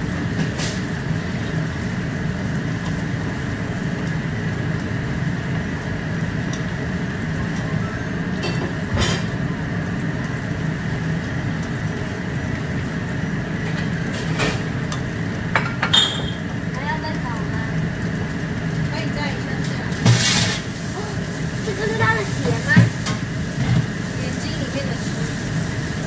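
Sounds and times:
gas hob rushing hum: 0.0s - 26.0s
vegetables sizzling in a pan: 0.0s - 26.0s.

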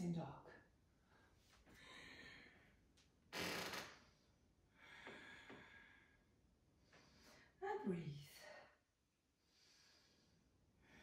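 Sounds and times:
person breathing: 1.0s - 2.8s, 4.8s - 7.6s, 9.4s - 11.0s.

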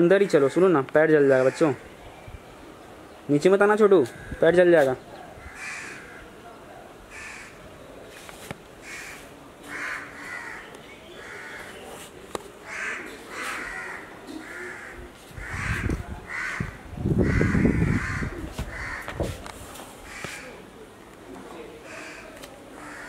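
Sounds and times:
crows cawing: 1.3s - 1.9s, 4.0s - 4.6s, 5.4s - 6.4s, 7.1s - 7.6s, 8.8s - 11.8s, 12.6s - 19.2s, 20.0s - 20.6s, 21.8s - 23.0s.

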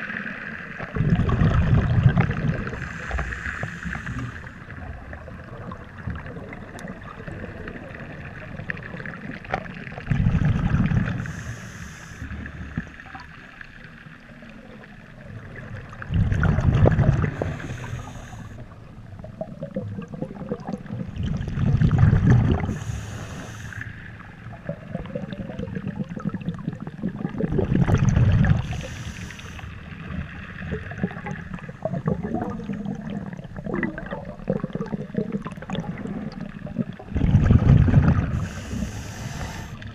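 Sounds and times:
exhaled bubbles rumbling underwater: 0.0s - 39.9s
regulator inhalation hiss: 2.7s - 4.7s, 11.2s - 12.5s, 17.3s - 18.7s, 22.7s - 24.1s, 28.6s - 29.8s, 38.4s - 39.9s.

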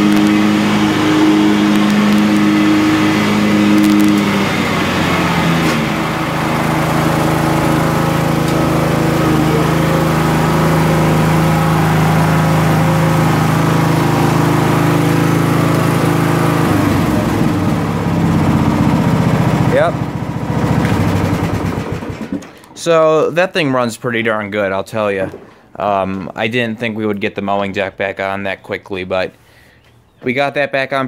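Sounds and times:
lawn tractor engine running: 0.0s - 23.1s.

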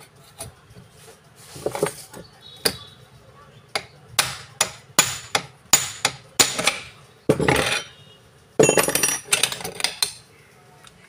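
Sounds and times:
metallic clattering and scraping: 0.9s - 2.2s, 6.6s - 8.0s, 8.6s - 10.2s
hammer striking steel punch: 4.2s - 6.9s.

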